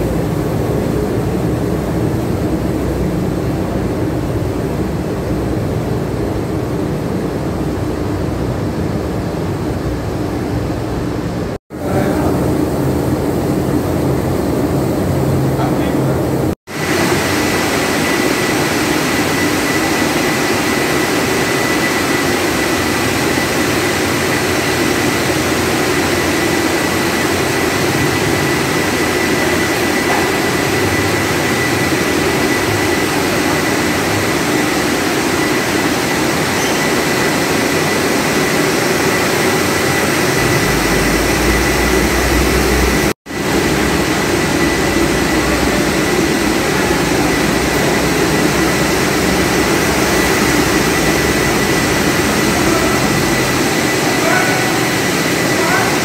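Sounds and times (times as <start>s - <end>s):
production line machinery roar: 0.0s - 56.0s
thin high whine: 11.4s - 56.0s.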